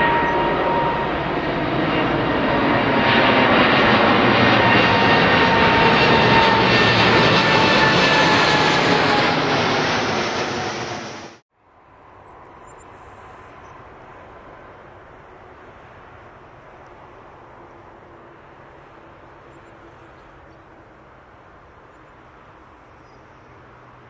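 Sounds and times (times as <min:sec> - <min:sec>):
jet engines roaring: 0:00.0 - 0:11.4.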